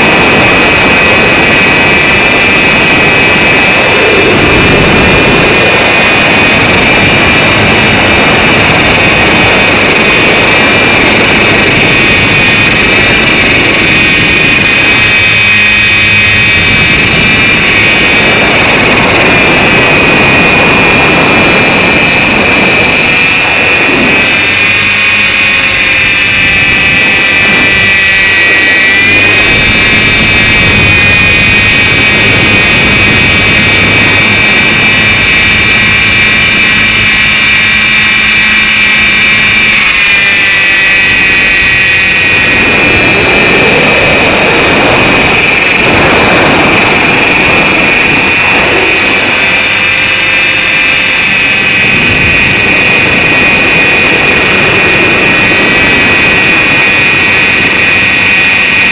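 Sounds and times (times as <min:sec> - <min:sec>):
rc helicopter motor whine: 0:00.0 - 0:58.9.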